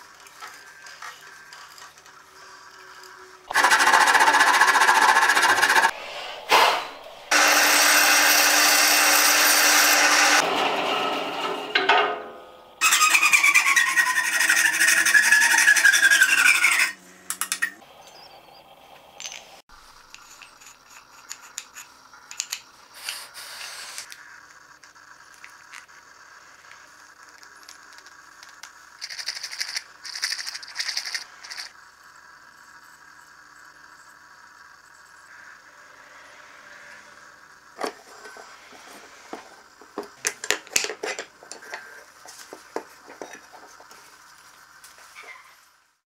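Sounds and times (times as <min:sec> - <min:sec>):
bandsaw cutting wood: 0:03.5 - 0:06.6, 0:07.3 - 0:11.8, 0:12.8 - 0:17.0.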